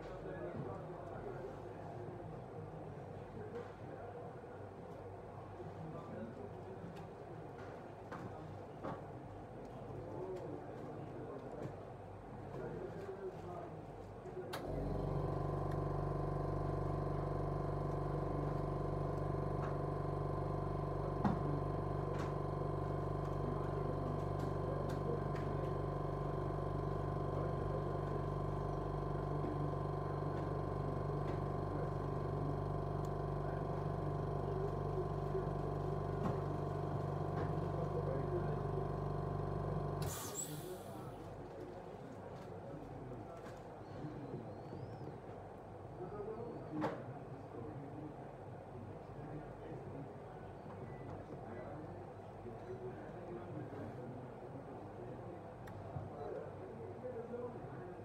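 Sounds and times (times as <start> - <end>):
electric motor hum: 14.6 - 41.0
short burst of hiss: 40.0 - 41.0.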